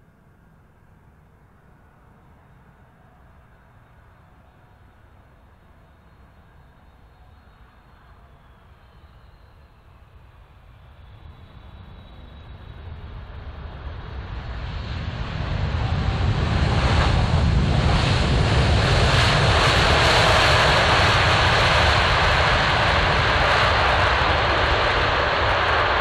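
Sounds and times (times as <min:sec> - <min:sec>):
jet engines reverse thrust: 0:07.3 - 0:26.0.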